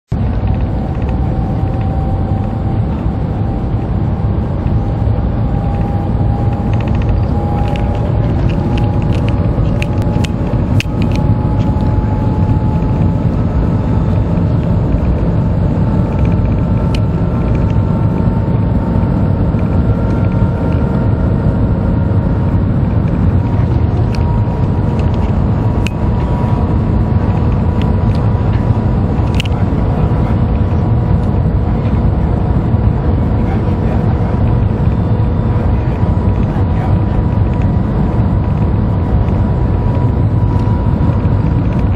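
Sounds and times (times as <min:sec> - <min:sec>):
faint whining tones: 0:00.1 - 0:41.9
train rumbling at speed: 0:00.1 - 0:41.9.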